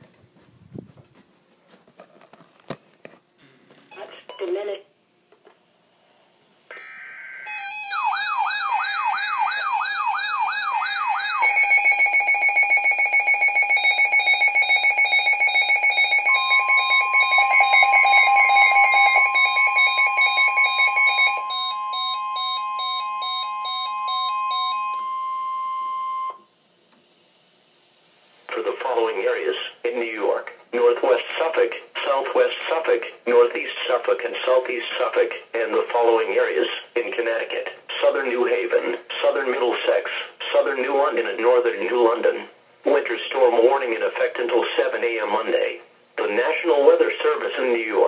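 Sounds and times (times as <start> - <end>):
electronic alarm beeps: 3.9 - 4.6, 6.7 - 26.5
steady long warning tone: 6.7 - 26.5.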